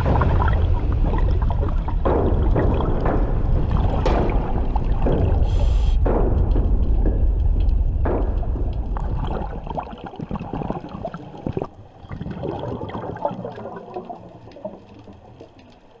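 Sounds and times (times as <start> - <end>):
low rumble: 0.0 - 11.8
underwater bubbling and gurgling: 0.0 - 16.0
small crackling clicks: 4.0 - 11.7, 13.2 - 16.0.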